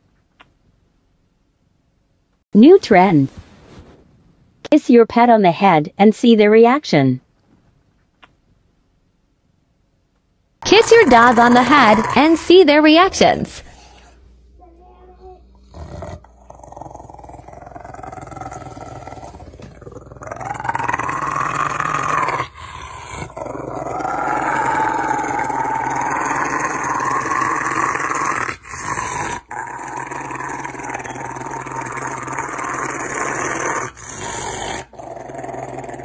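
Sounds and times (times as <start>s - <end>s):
dog growling: 10.6s - 14.2s, 14.8s - 36.0s.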